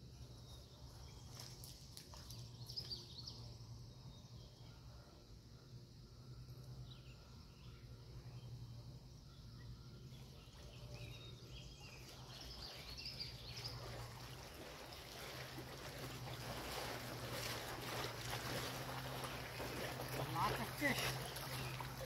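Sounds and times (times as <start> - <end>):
water sloshing around wading legs: 0.8 - 3.2, 10.2 - 22.0.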